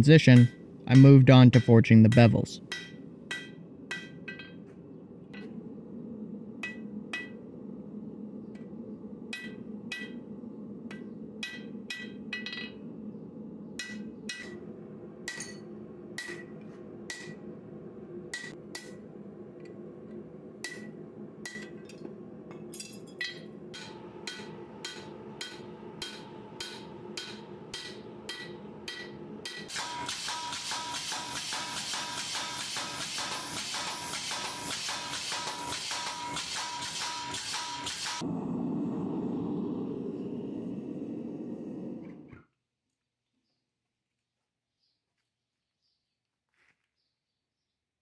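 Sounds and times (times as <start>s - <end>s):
steady low drone: 0.0s - 29.9s, 38.0s - 42.3s
hammer striking steel on anvil: 0.2s - 5.5s, 6.6s - 7.4s, 9.3s - 10.2s, 10.9s - 12.8s, 13.8s - 14.6s, 15.2s - 17.4s, 18.3s - 19.1s, 20.6s - 38.2s.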